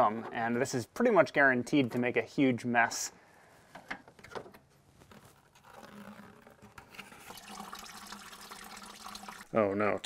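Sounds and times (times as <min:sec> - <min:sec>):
coolant pouring into plastic bucket: 0:07.0 - 0:09.6.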